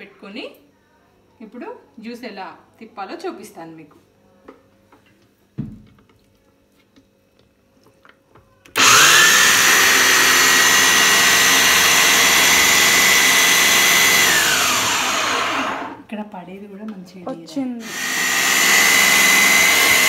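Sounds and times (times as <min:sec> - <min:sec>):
electric juicer motor whine: 0:08.7 - 0:16.0, 0:17.8 - 0:20.0.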